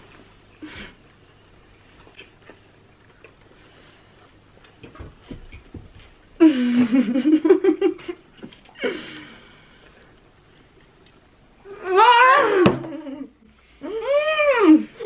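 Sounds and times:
soft chewing: 0.0s - 6.3s.

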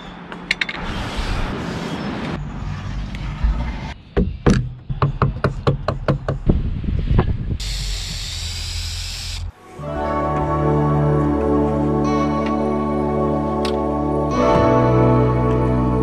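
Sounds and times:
aerosol spray hissing: 7.6s - 9.5s.

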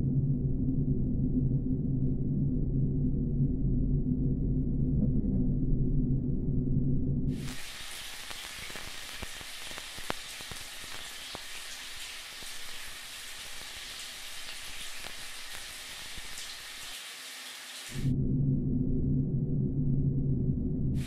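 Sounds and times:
dense crackling hiss: 7.4s - 18.1s.

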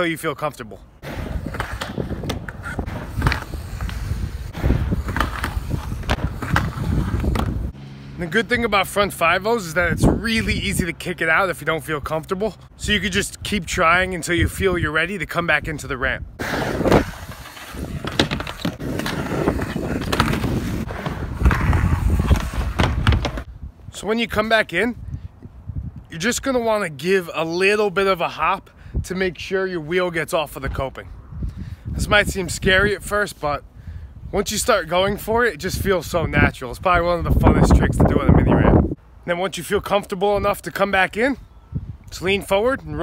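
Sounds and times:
skateboard truck grinding metal: 1.0s - 7.8s, 16.4s - 23.4s
skateboard wheels rumbling: 1.0s - 7.8s, 16.4s - 23.5s
skateboard clattering on wood: 16.7s - 23.5s.

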